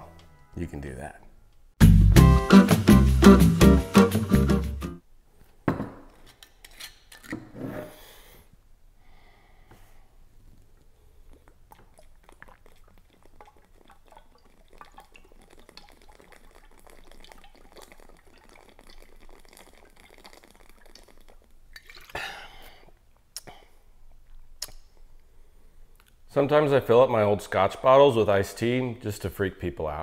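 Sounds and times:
liquid glugging from bottle: 0:11.5 - 0:22.2.

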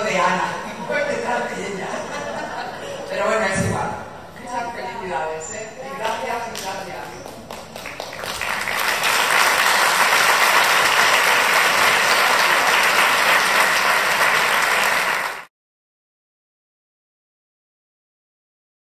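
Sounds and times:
audience applauding: 0:06.5 - 0:15.5.

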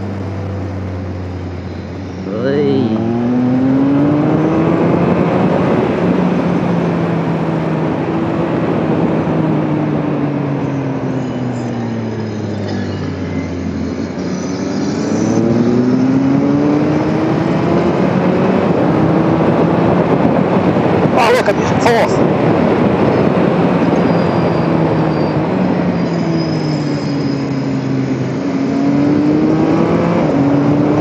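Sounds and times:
motorcycle engine revving: 0:00.0 - 0:10.0, 0:12.2 - 0:21.1, 0:22.6 - 0:31.0
wind rush: 0:15.4 - 0:26.4.

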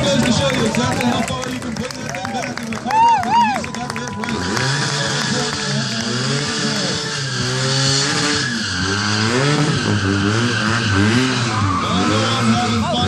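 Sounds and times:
motorcycle engine revving: 0:03.9 - 0:13.0
tyre spinning on asphalt: 0:04.2 - 0:13.0.

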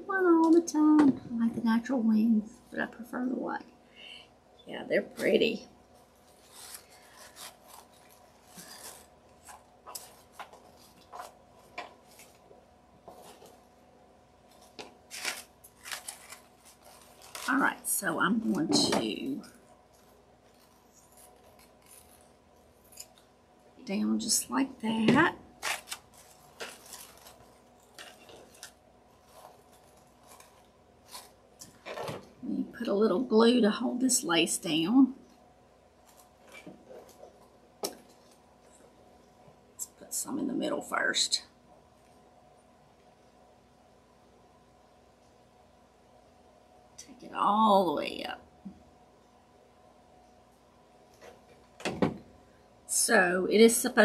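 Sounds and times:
paper coffee filters rustling: 0:05.0 - 0:13.7, 0:14.4 - 0:23.2, 0:24.8 - 0:32.4.

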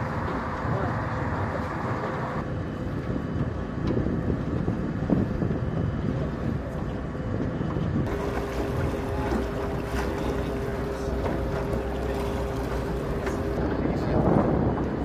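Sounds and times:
boat engine running: 0:00.0 - 0:15.0
steady hum: 0:00.0 - 0:15.0
wind buffeting microphone: 0:00.0 - 0:15.0
water washing: 0:08.1 - 0:13.7.

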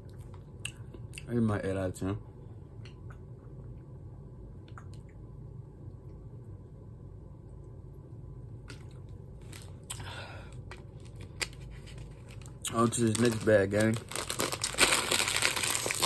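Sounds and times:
low room hum: 0:00.0 - 0:16.0
plastic bottle rustling: 0:11.0 - 0:16.0.

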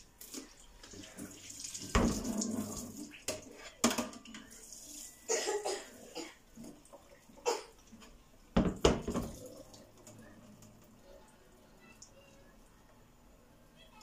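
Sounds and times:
hot water splashing on metal filter: 0:00.0 - 0:05.4
metal clattering on steel sink: 0:01.9 - 0:04.5.

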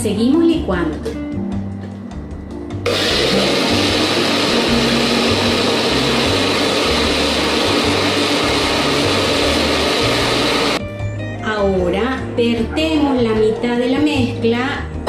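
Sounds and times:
blender running: 0:02.8 - 0:10.8.

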